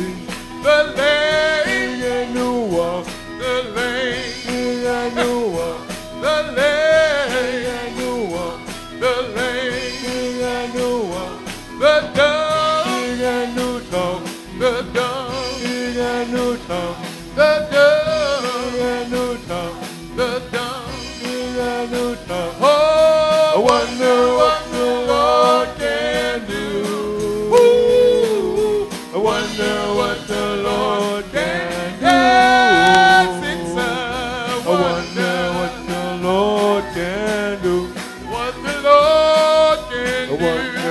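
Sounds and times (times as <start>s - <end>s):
band playing: 0.0s - 40.9s
person singing into microphone: 0.0s - 40.9s
steady drum beat: 0.0s - 40.9s.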